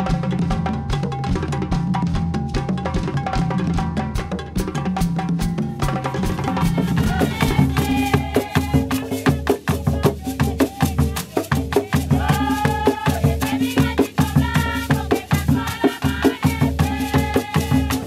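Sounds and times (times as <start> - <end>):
hand drums: 0.0 - 18.0
rattling percussion: 0.0 - 18.0
group of women singing: 6.3 - 18.0.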